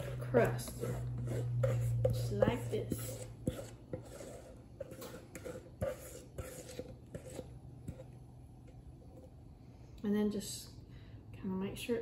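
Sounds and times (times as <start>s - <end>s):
bowl clicks and light scrapes: 0.0s - 9.4s.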